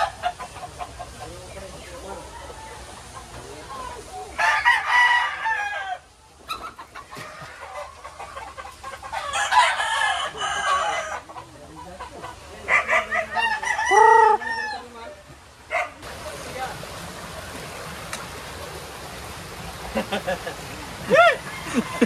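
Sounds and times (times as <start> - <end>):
roosters crowing: 4.3 - 6.1, 6.9 - 11.6, 12.6 - 16.0, 21.0 - 22.0.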